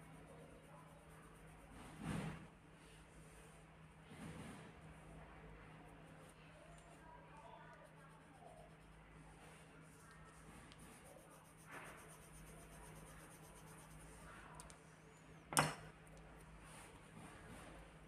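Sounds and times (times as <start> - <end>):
pencil scratching on paper: 0.0 - 2.4, 5.8 - 14.5.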